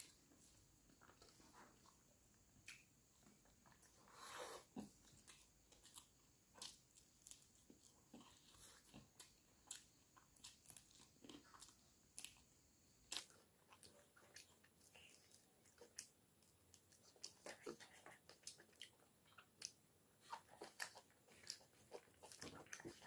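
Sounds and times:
chewing and crunching food: 0.0s - 23.0s.

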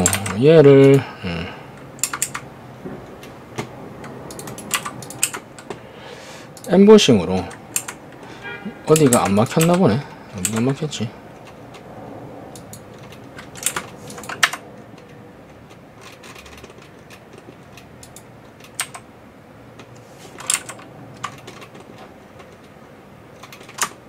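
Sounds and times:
computer keyboard and mouse clicking: 0.0s - 1.0s, 2.0s - 2.5s, 3.2s - 5.8s, 7.5s - 8.2s, 8.9s - 9.8s, 10.4s - 11.9s, 12.5s - 19.1s, 19.8s - 24.0s.

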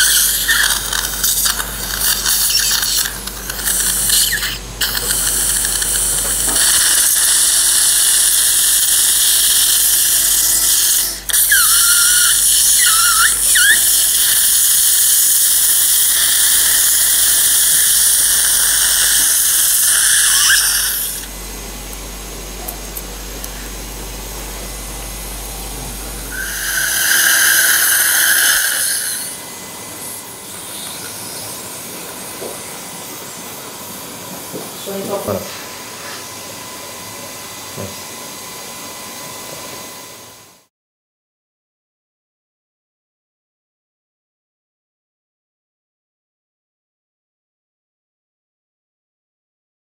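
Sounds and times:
surgical drill whining: 0.0s - 35.4s.

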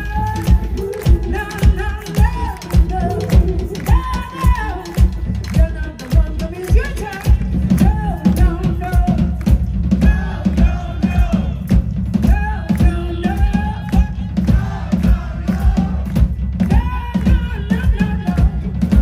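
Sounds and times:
person singing: 0.0s - 9.4s
drum kit beat: 0.0s - 19.0s
live band playing: 0.0s - 19.0s.

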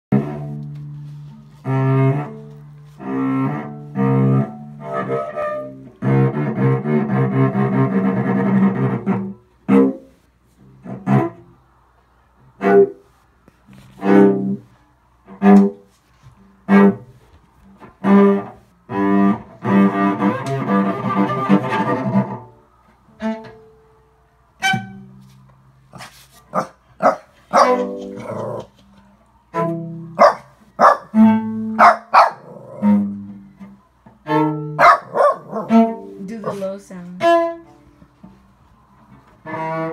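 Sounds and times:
bowed cello sustained notes: 0.1s - 11.8s, 13.9s - 25.3s, 29.4s - 30.2s, 31.1s - 31.8s, 32.5s - 34.8s, 35.5s - 39.9s
puppy barking: 25.9s - 28.7s, 30.2s - 31.2s, 31.8s - 32.9s, 34.8s - 36.6s.

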